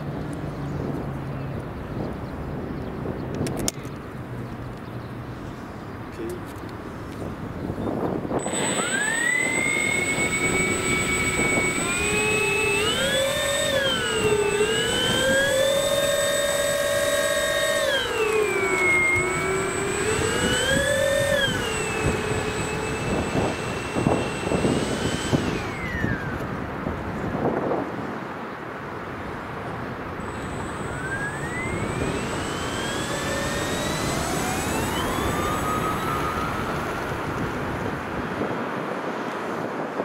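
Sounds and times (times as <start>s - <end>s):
model plane electric motors whining: 7.0s - 27.5s, 30.1s - 39.8s.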